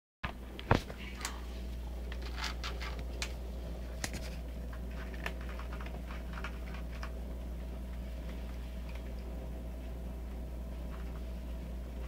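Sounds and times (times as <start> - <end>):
steady low hum: 0.2 - 12.0
kitten crunching dry kibble: 2.0 - 9.3.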